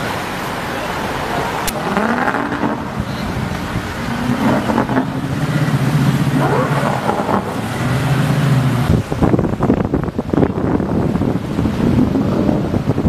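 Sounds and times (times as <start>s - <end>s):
wind rumbling on microphone: 1.0s - 13.0s
motor engine humming: 1.3s - 11.5s.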